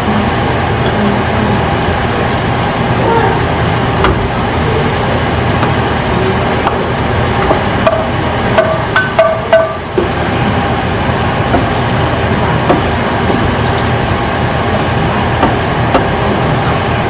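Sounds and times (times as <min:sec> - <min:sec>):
wooden spoon knocking a pan: 0:07.4 - 0:10.2, 0:12.6 - 0:13.5.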